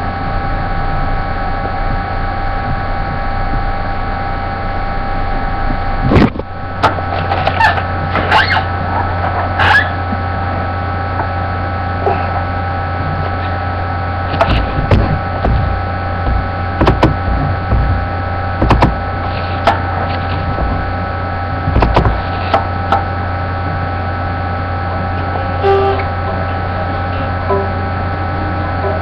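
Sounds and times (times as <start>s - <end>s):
low electrical hum: 0.0s - 29.0s
knocks and clicks: 14.3s - 21.0s, 21.6s - 23.1s
faint steady high tones: 23.4s - 29.0s.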